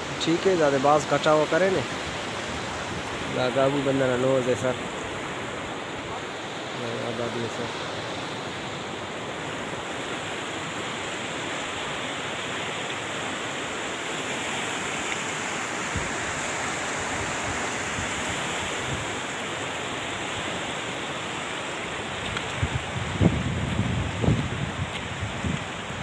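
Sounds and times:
river water rushing: 0:00.0 - 0:26.0.

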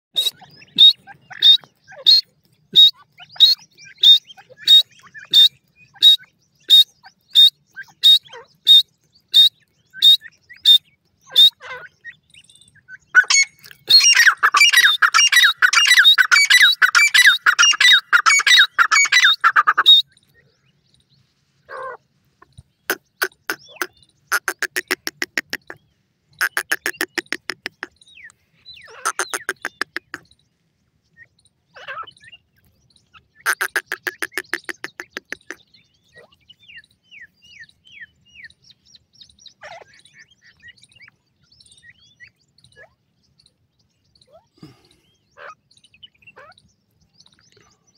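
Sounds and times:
francolin calling: 0:00.2 - 0:20.7, 0:21.7 - 0:30.4, 0:33.1 - 0:41.2.

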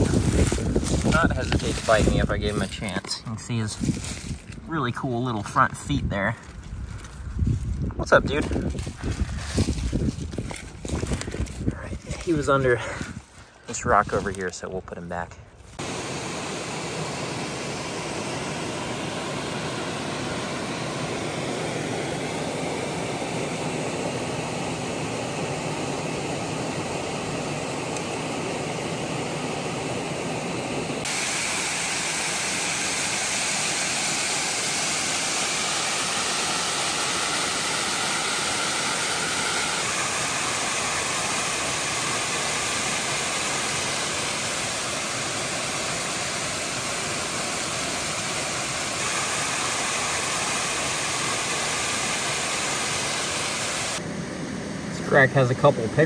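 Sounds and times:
waterfall and creek rushing: 0:31.0 - 0:54.0.

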